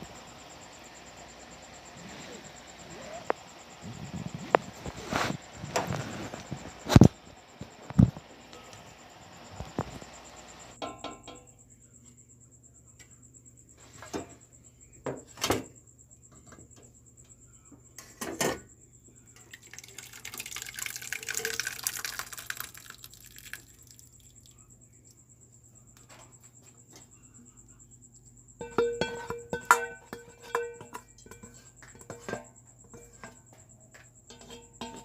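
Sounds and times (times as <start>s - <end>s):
water poured through strainer: 19.4s - 24.4s
metal pot and strainer clinking: 28.6s - 33.3s, 34.3s - 35.0s.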